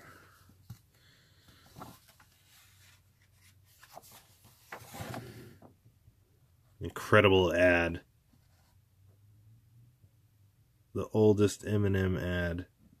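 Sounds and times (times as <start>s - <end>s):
comic pages rustling: 0.5s - 5.7s.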